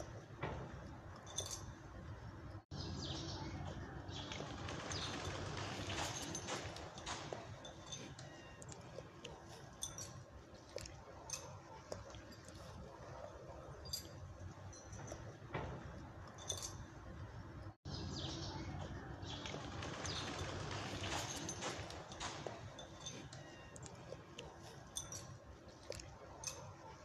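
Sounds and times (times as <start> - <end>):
low outdoor rumble: 0.0 - 27.0.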